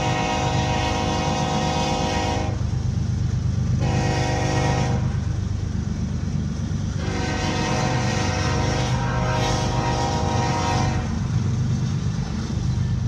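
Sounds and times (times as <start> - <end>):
locomotive air horn blasts: 0.0 - 2.6, 3.8 - 5.2, 7.0 - 11.4
road and engine rumble: 0.0 - 13.0.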